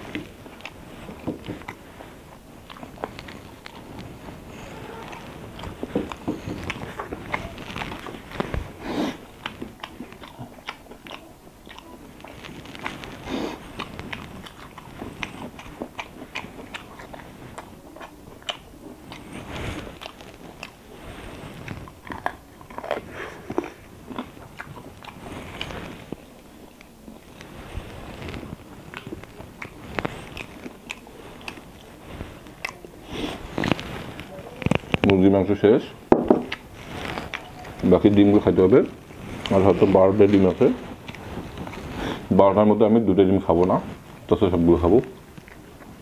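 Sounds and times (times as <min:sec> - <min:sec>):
person chewing with mouth smacks: 0:00.0 - 0:46.0
sharp clicks while chewing: 0:05.1 - 0:20.8.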